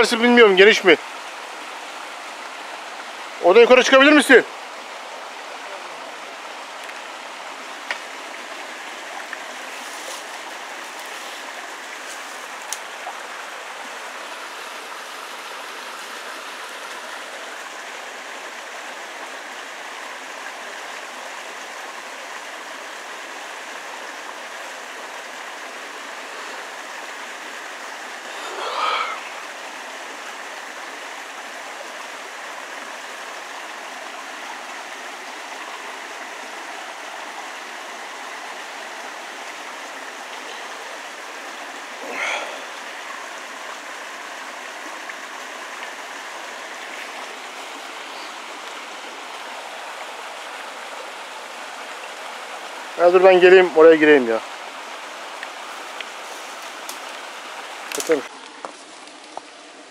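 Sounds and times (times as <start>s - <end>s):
running water: 0.0s - 59.9s
wavering call: 28.2s - 29.5s.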